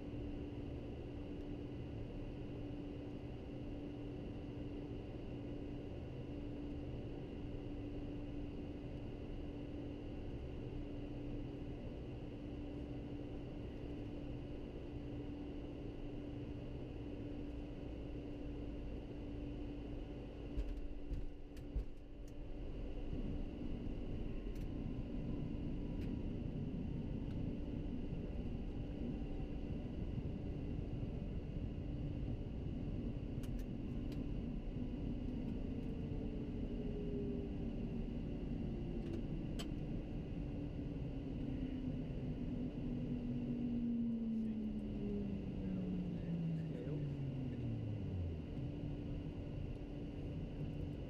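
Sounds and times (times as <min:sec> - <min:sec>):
jet cockpit hum: 0:00.0 - 0:51.0.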